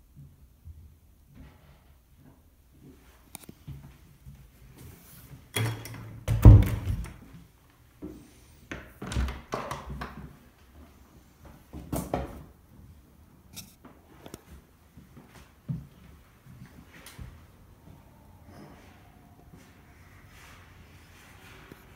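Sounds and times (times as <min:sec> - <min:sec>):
door opening and shutting: 0:05.5 - 0:07.2
door thuds and knocks: 0:06.3 - 0:07.2.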